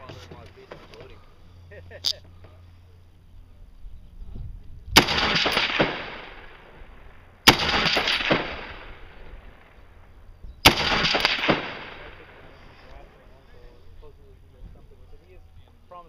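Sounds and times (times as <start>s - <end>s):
rifle shots: 4.9s - 12.7s
rolling echo: 4.9s - 14.2s.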